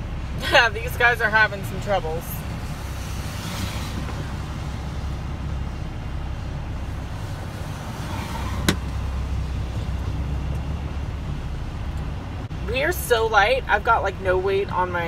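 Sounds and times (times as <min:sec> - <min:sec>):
truck engine rumble: 0:00.0 - 0:15.0.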